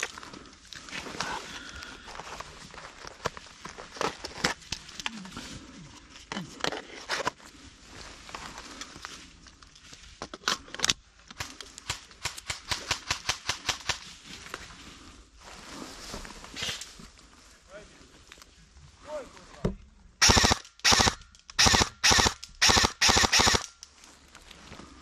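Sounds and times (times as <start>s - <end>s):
footsteps through dry undergrowth: 7.4s - 10.2s, 14.0s - 19.6s, 23.9s - 25.0s.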